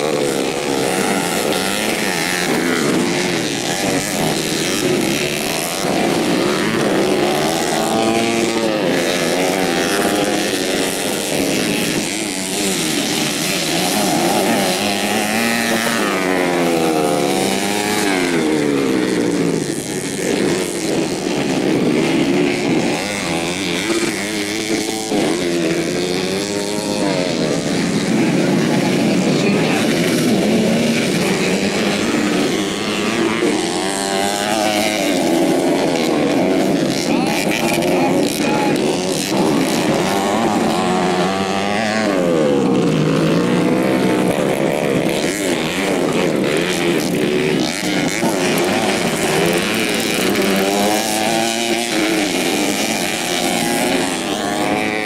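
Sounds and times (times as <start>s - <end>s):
motorcycle engines revving: 0.0s - 55.0s.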